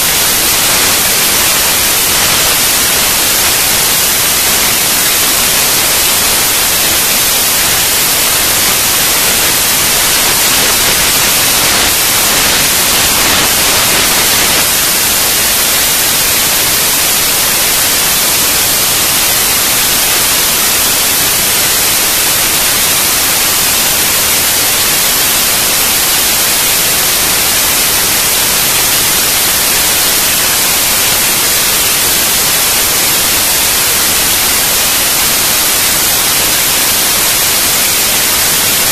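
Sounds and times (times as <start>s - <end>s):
static hiss: 0.0s - 38.9s.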